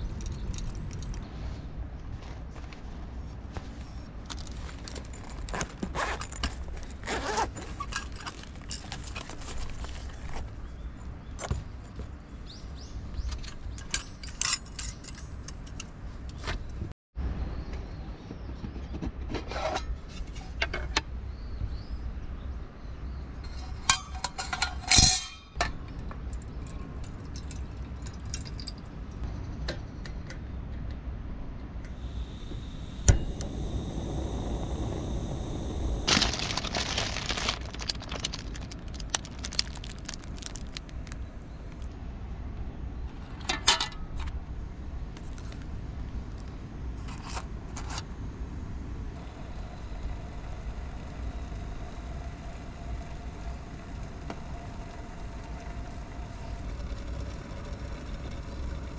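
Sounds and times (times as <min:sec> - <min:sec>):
metal clinks and clangs: 0:13.2 - 0:15.9, 0:23.5 - 0:29.0.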